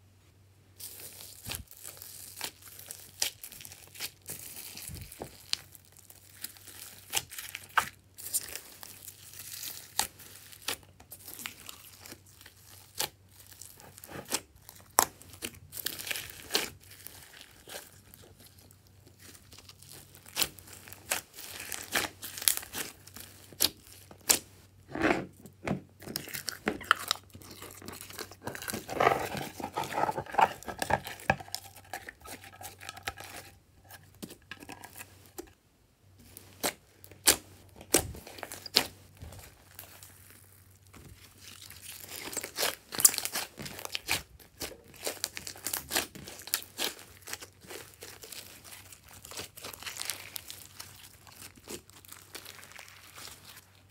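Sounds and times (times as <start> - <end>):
slime squished by hand crackling: 36.6 - 53.7.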